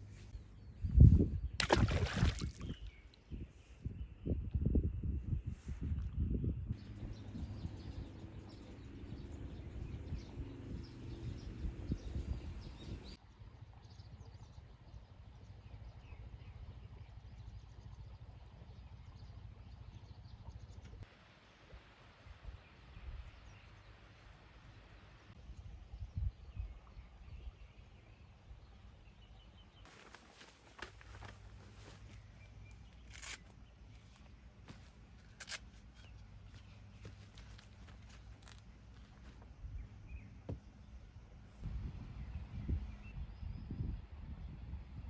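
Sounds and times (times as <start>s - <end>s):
birds chirping: 0.0s - 4.4s, 6.7s - 13.2s, 29.0s - 44.0s
low outdoor rumble: 6.6s - 13.6s
steady low rumble: 41.0s - 45.0s.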